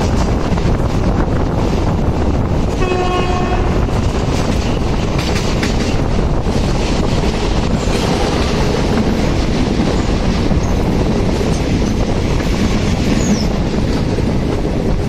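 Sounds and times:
train wheels rumbling on track: 0.0 - 15.0
train horn blast: 2.7 - 4.1.

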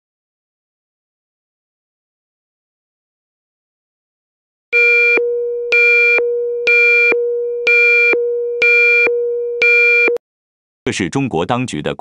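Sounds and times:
pulsing higher electronic tone: 4.8 - 10.2
steady low electronic tone: 4.8 - 10.2.

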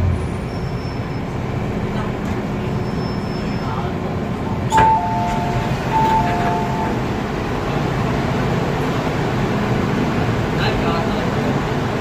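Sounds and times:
train hum: 0.0 - 12.0
electronic two-note chime: 4.7 - 7.0.

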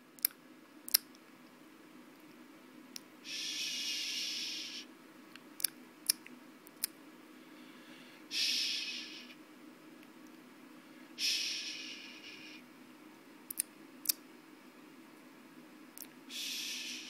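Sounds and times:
person softly shushing: 8.3 - 9.3, 11.2 - 12.6, 16.3 - 17.0.

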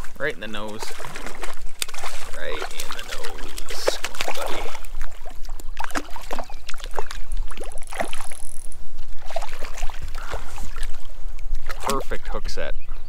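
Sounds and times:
fish splashing in water: 0.0 - 12.2.

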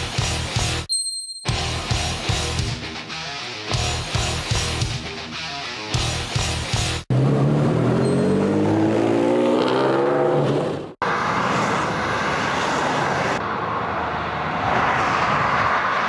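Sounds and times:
sports car engine accelerating: 7.1 - 11.0
motorway traffic rushing past: 7.1 - 16.0.

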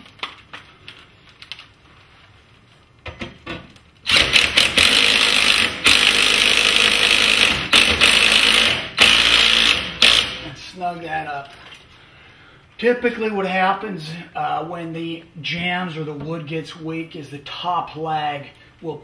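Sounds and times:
cordless drill driving screw: 4.1 - 10.4.

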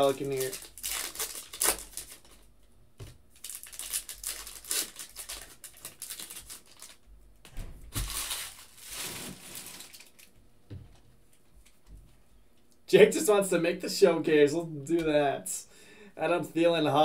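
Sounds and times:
foil wrapper crinkling: 0.0 - 2.5, 3.3 - 7.1, 7.9 - 10.3.

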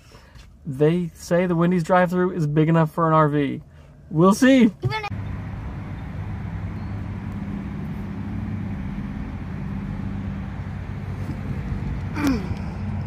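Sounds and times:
traffic noise: 3.2 - 13.0
low engine drone: 5.1 - 13.0.

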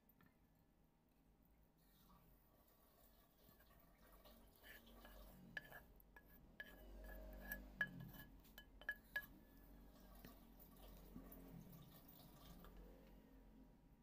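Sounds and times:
wooden spatula scraping pan: 2.8 - 11.6.

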